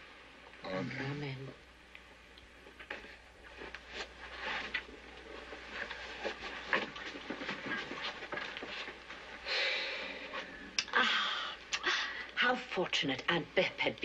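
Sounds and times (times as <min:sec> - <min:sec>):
clothes and shoes rustling: 0:02.7 - 0:10.7.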